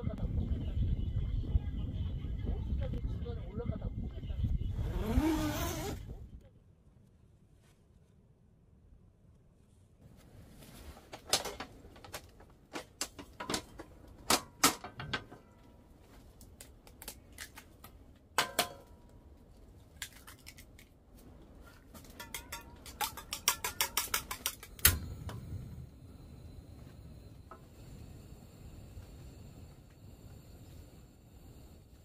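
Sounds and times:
chopsticks beating eggs: 0:22.2 - 0:24.8.

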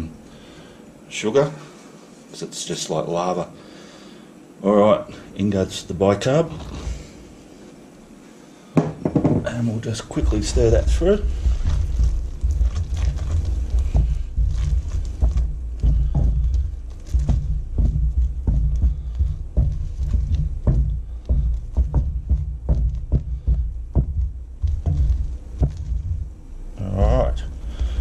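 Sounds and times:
wooden spoon knocking and scraping pot: 0:10.2 - 0:23.2.

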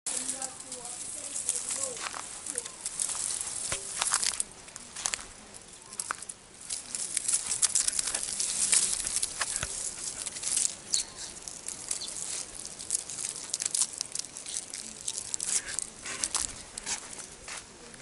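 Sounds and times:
dry grass and leaves crackling: 0:00.1 - 0:18.0.

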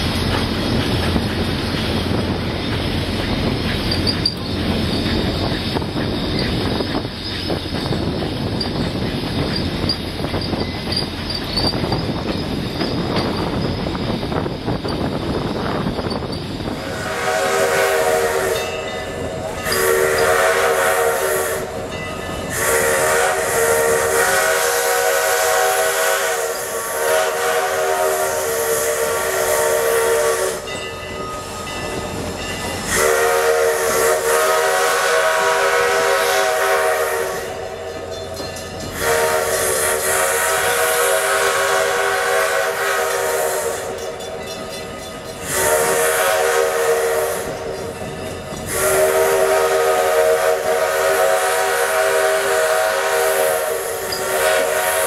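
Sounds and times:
hissing steam: 0:00.0 - 0:55.0
steam whistle chord blasts: 0:16.8 - 0:31.7, 0:32.8 - 0:38.0, 0:38.9 - 0:44.1, 0:45.4 - 0:48.0, 0:48.7 - 0:55.0.

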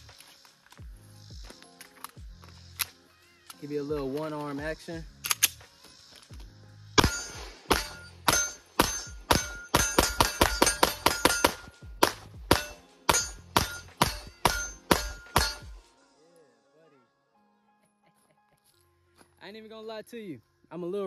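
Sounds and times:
pistol shots: 0:07.0 - 0:15.7.

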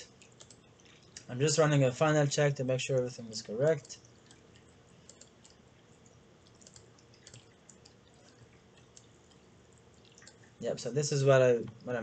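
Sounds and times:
faint computer clicks: 0:00.0 - 0:01.4, 0:02.9 - 0:10.6.

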